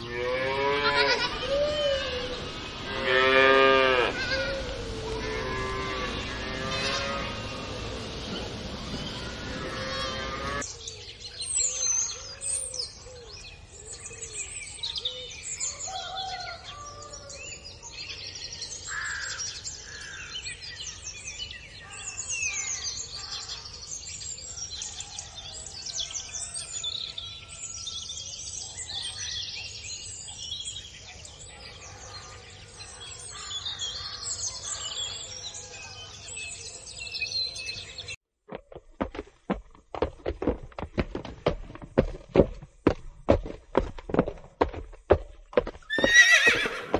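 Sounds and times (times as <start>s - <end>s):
cow mooing: 0.0s - 1.3s, 2.9s - 4.2s, 5.0s - 7.8s, 9.2s - 10.6s
songbirds chirping and trilling: 0.0s - 46.9s.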